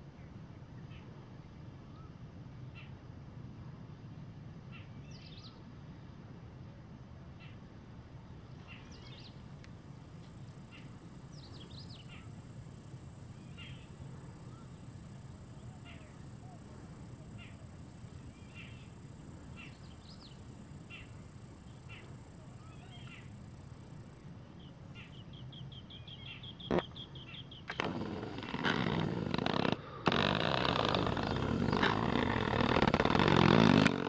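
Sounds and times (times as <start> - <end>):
high insect-like hiss: 7.9 - 26.9, 27.6 - 34.0
faint bird chirps: 8.6 - 9.4, 10.5 - 27.9
quick ticking: 27.7 - 34.0.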